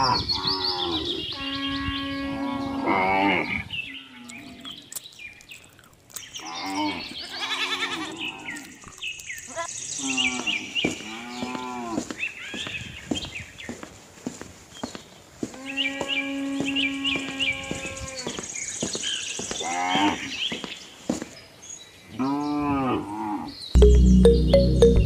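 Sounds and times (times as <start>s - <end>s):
small birds chirping faintly: 3.5s - 22.6s.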